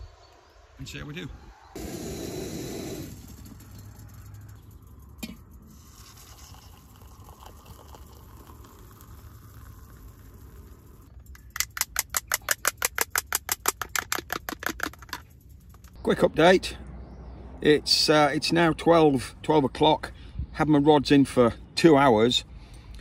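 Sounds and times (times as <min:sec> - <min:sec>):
water pouring into mug: 0:05.7 - 0:11.1.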